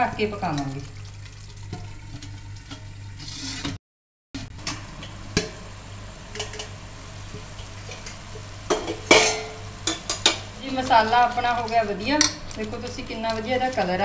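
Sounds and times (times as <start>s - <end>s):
masala simmering and sizzling: 0.0s - 3.8s, 4.4s - 14.0s
steel clinking on pan: 8.7s - 10.5s.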